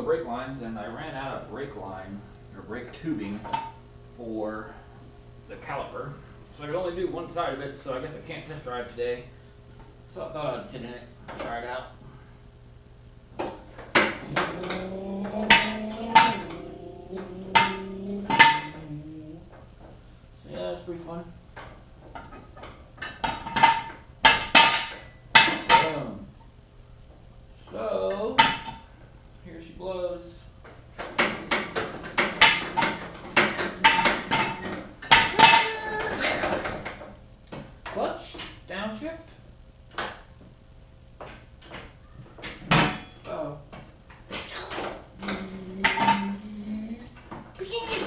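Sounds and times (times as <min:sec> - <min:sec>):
metal frame clanking and rattling: 0:13.9 - 0:18.8.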